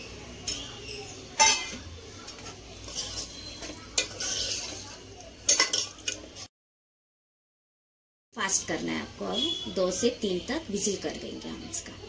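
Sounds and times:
metal spoon scraping a pot: 0:02.4 - 0:06.2.

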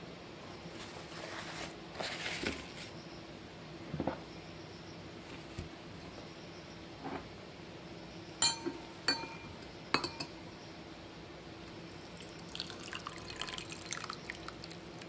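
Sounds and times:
paper towel rustling: 0:00.8 - 0:02.9.

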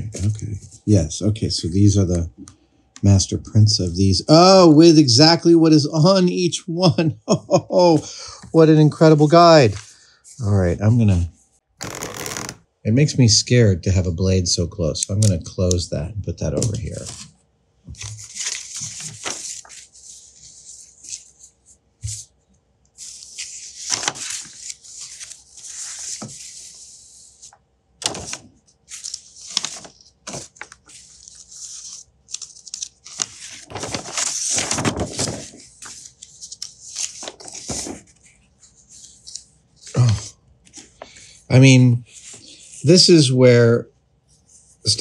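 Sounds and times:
paper rustling and crackling: 0:11.8 - 0:12.6, 0:16.6 - 0:22.3, 0:23.0 - 0:41.2.

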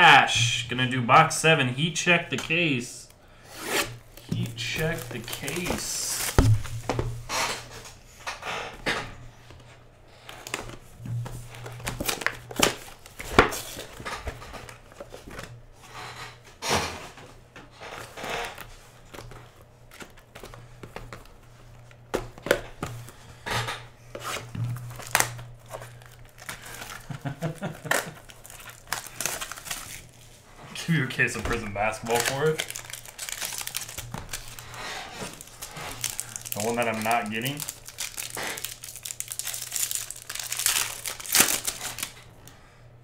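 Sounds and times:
plastic wrap crinkling and tearing: 0:03.5 - 0:07.8, 0:10.2 - 0:15.6, 0:24.1 - 0:42.3.

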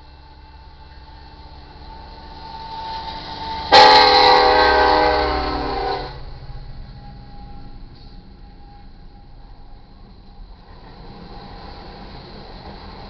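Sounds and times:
train rumble: 0:00.0 - 0:13.0
train air horn blast: 0:03.4 - 0:06.4.

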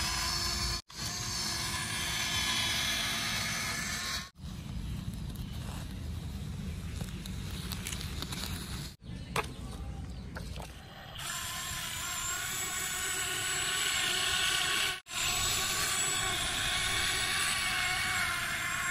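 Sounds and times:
toy electric motors whining: 0:00.0 - 0:04.4, 0:11.1 - 0:18.9.

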